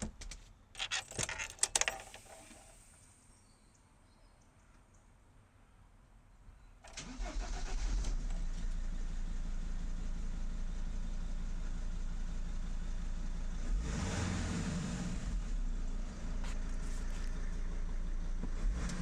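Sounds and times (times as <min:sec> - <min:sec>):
diesel engine starting and idling: 0:06.9 - 0:19.0
diesel engine revving: 0:12.0 - 0:19.0.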